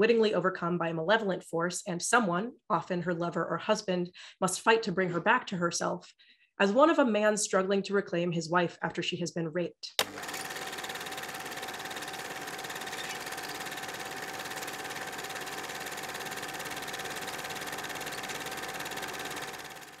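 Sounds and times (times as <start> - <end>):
film projector clatter: 10.0 - 20.0.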